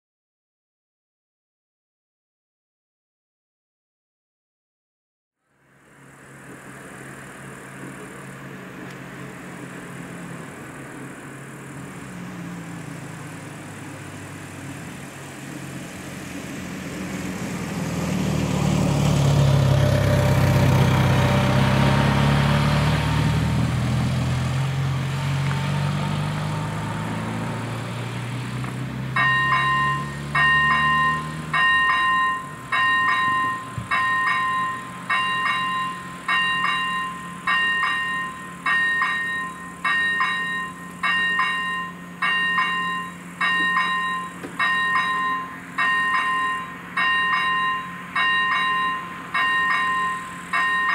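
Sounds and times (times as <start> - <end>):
car engine passing: 5.6 - 50.9
level crossing bell ringing: 29.2 - 50.9.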